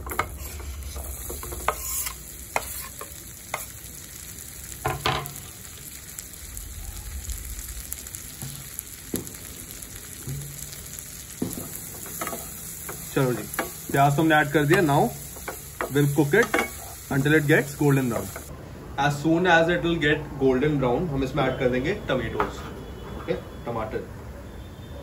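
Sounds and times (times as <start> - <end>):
onions sizzling in a pan: 0.0 - 18.5
knife scraping chopping board: 1.6 - 3.0.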